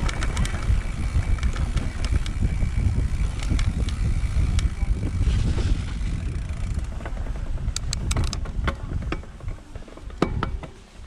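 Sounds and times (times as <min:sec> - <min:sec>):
bike clicks and rattles: 0:00.0 - 0:11.0
tyres rolling over dirt and rocks: 0:00.0 - 0:11.0
wind rumbling on microphone: 0:00.0 - 0:11.0.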